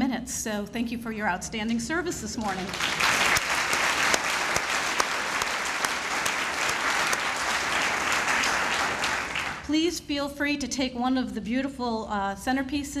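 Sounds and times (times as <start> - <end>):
audience applauding: 2.5 - 9.7.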